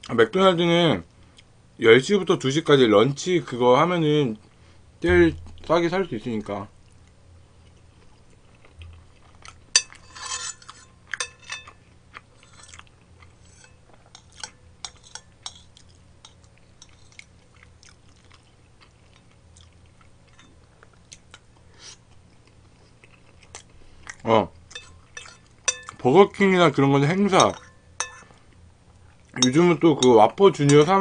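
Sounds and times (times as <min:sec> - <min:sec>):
spoon scraping a ceramic bowl: 0:09.8 - 0:11.8, 0:12.4 - 0:12.8, 0:13.4 - 0:15.8, 0:27.4 - 0:28.4.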